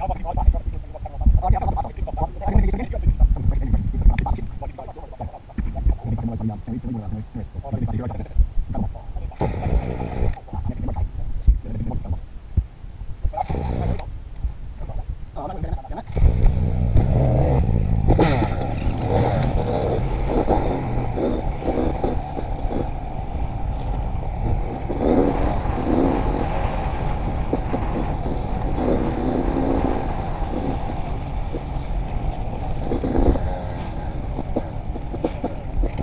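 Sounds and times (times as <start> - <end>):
dirt bike engine revving: 16.1 - 23.1, 24.4 - 36.0.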